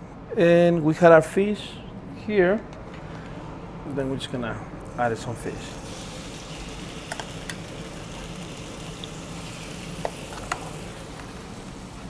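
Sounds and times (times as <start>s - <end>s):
fish sizzling in oil: 5.8s - 12.0s.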